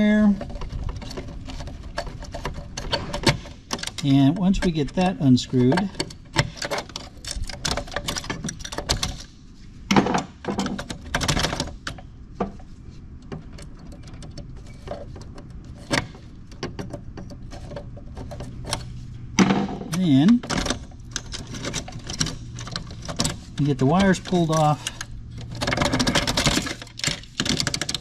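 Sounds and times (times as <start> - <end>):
metal clatters: 13.3 - 28.0.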